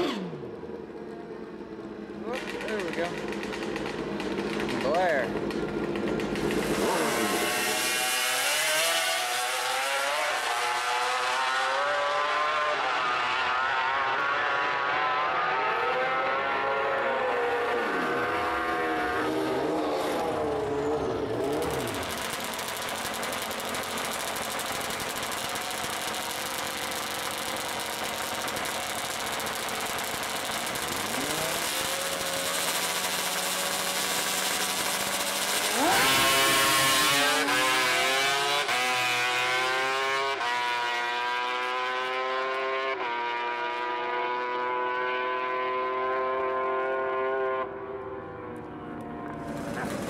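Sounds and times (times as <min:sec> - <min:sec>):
two-stroke motorcycle engines: 0:00.0 - 0:50.0
dragbike launching with gear shifts: 0:02.2 - 0:09.7, 0:19.5 - 0:39.1.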